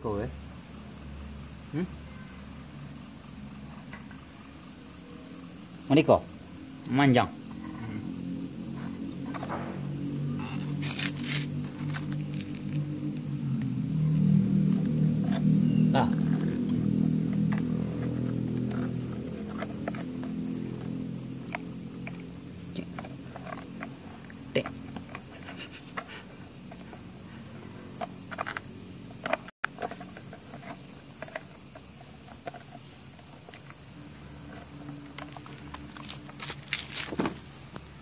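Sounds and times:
crickets trilling: 0.0 - 38.0
low hum: 7.5 - 26.5.

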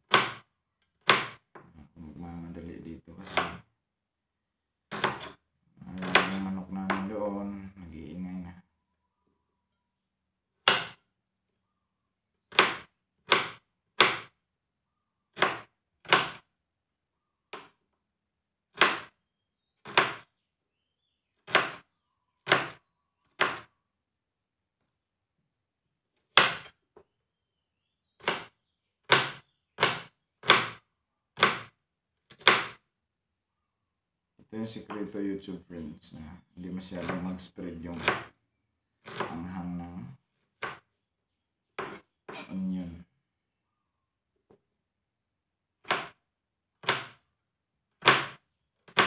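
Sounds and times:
knife chopping on cutting board: 0.1 - 0.4, 1.0 - 1.4, 3.2 - 3.6, 4.9 - 7.1, 10.6 - 11.0, 12.5 - 14.3, 15.4 - 16.4, 18.8 - 19.1, 19.8 - 20.2, 21.4 - 21.8, 22.4 - 22.8, 23.4 - 23.7, 26.3 - 26.7, 28.2 - 28.5, 29.1 - 30.8, 31.4 - 31.7, 32.3 - 32.8, 37.9 - 38.3, 39.0 - 39.4, 40.6 - 40.8, 41.8 - 42.5, 45.8 - 46.2, 46.8 - 47.2, 48.0 - 49.0.

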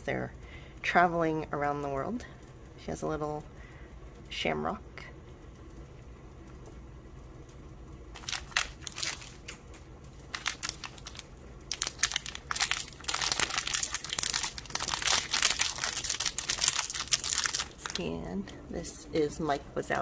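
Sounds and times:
plastic bag crinkling: 8.1 - 18.2.

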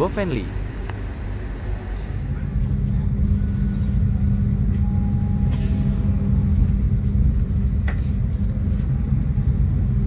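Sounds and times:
train rumble and hum: 0.0 - 10.0
faint high whines: 2.1 - 7.0.

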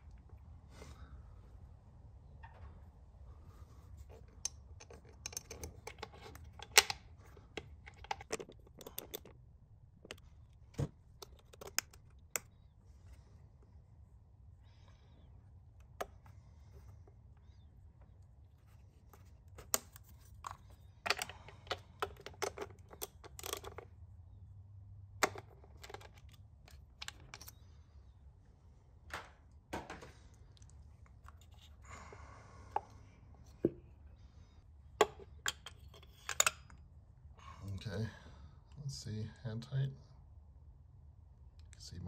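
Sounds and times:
socket extension rattling: 4.8 - 9.4.

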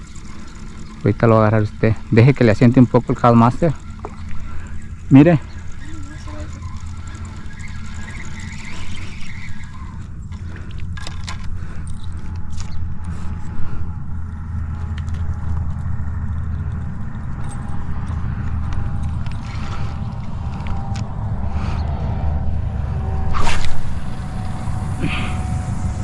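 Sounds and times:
fishing reel clicks: 0.0 - 12.8.

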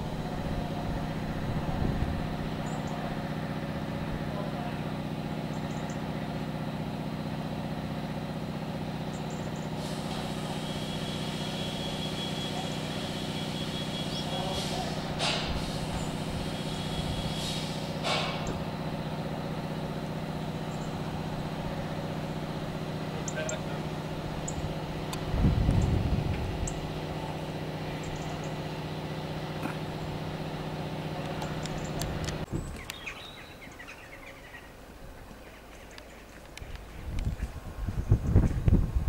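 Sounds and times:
vehicle engine idling hum: 0.0 - 39.0
hissing: 9.8 - 18.2.

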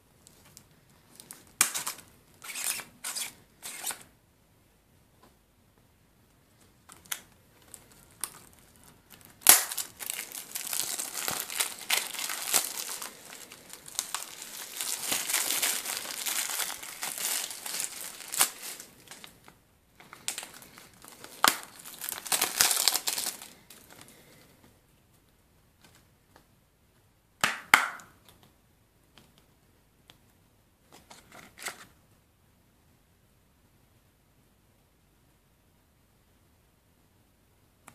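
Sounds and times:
plastic shrink-wrap crinkling: 6.9 - 24.1.

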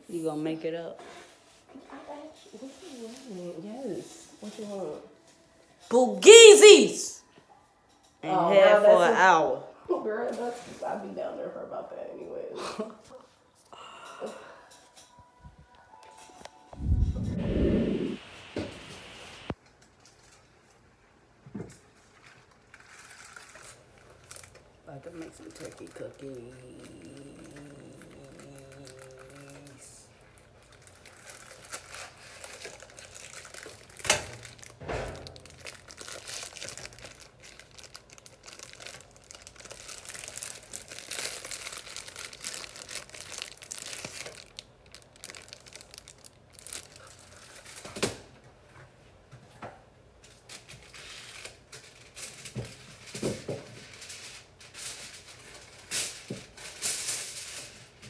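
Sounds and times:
plastic packaging crinkling: 21.9 - 48.2.

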